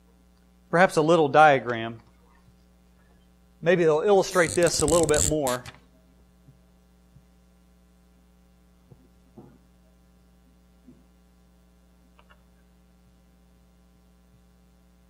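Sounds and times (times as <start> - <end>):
electrical mains hum: 0.0 - 15.0
marker squeaking on whiteboard: 4.3 - 5.7.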